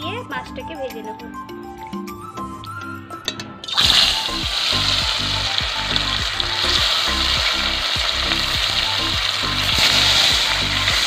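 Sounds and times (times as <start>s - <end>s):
fish sizzling in hot oil: 3.7s - 11.0s.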